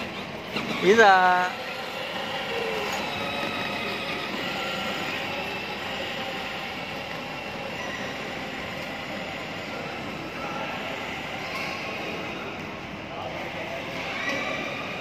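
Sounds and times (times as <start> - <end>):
toy car electric motor whining: 0.0 - 15.0
plastic wheels rolling on stone: 0.1 - 8.9.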